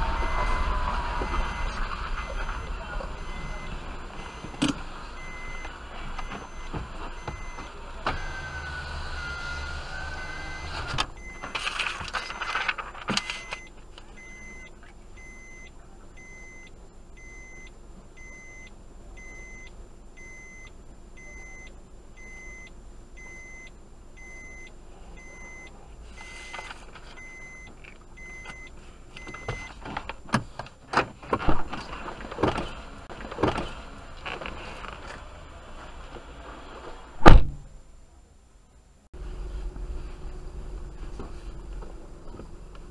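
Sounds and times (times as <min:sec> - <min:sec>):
electronic beeper beeping: 0:00.0 - 0:04.6, 0:05.2 - 0:11.5, 0:13.2 - 0:26.6
knocks and clatter: 0:29.8 - 0:34.4.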